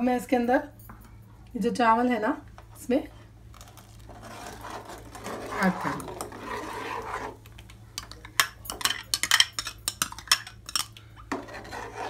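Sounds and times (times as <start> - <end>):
steel spoon scraping a pot: 4.1 - 7.4, 8.8 - 12.0.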